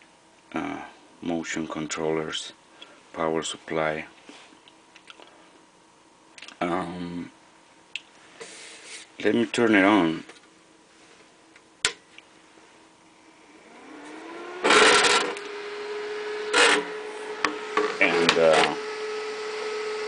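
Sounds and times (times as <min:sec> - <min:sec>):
cooling fan hum: 0:00.0 - 0:20.0.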